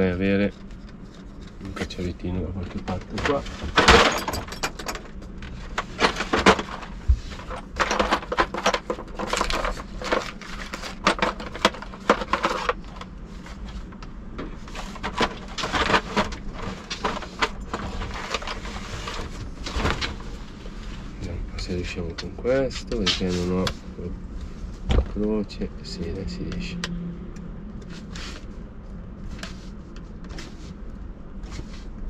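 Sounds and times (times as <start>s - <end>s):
tools clattering in a drawer: 2.7s - 13.0s, 14.9s - 20.2s.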